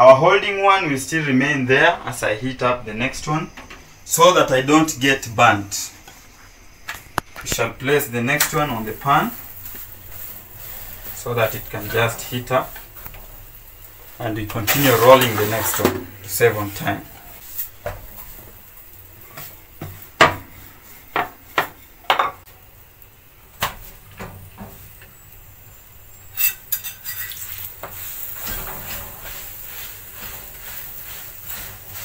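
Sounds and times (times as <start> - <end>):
faint oil sizzle: 2.2 - 32.0
metal spoon clinking: 26.4 - 27.6.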